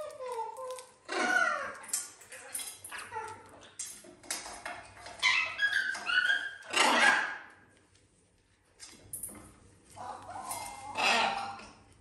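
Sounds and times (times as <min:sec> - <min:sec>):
parrots squawking: 0:01.0 - 0:01.8, 0:05.1 - 0:07.5, 0:10.0 - 0:11.8
parrot harsh screech: 0:10.7 - 0:11.6.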